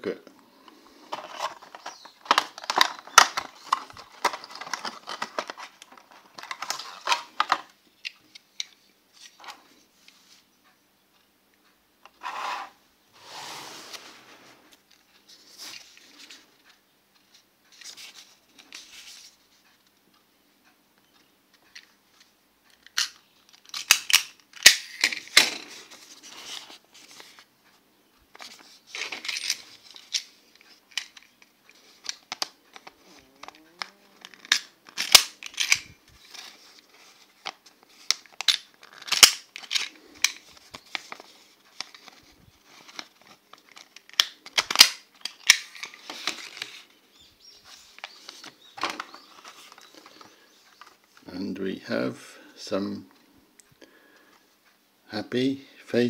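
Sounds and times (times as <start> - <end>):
binder clips clicking and snapping: 32.0 - 35.9, 37.4 - 40.4, 43.5 - 46.0.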